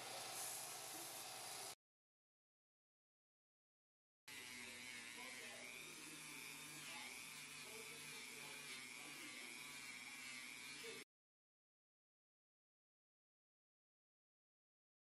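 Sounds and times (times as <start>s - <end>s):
rotary tool sanding wood: 4.3s - 11.1s.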